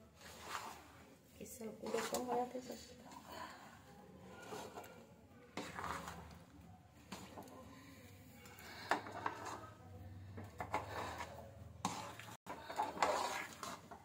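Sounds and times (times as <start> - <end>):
spoon scraping and knocking in pan: 8.6 - 9.8, 10.4 - 14.0.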